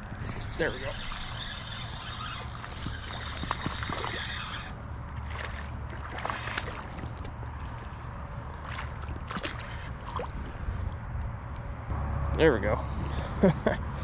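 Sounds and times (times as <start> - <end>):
water sloshing and splashing: 0.0 - 11.1.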